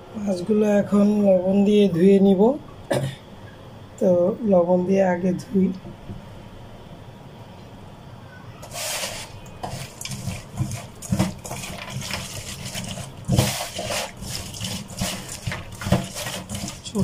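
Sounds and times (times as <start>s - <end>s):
wet squelching and sloshing: 8.7s - 17.0s.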